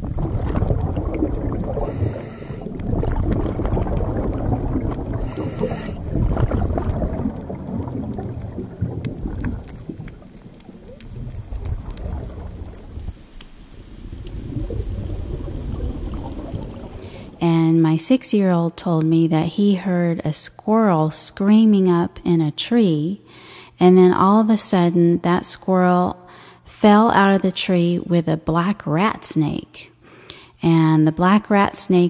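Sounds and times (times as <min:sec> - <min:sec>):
underwater rumble: 0:00.0 - 0:17.4
hissing rushes: 0:00.8 - 0:17.4.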